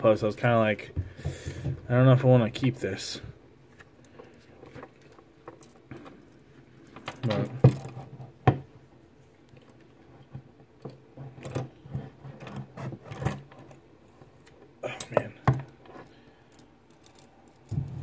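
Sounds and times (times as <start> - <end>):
metal trap clinking and rattling: 14.9 - 18.0.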